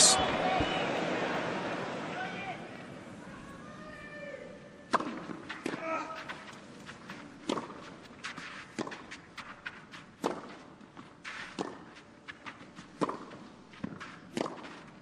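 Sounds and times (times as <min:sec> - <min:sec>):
tennis ball hit by racket: 0:04.9 - 0:05.8, 0:07.4 - 0:07.9, 0:10.2 - 0:10.6, 0:13.0 - 0:14.8.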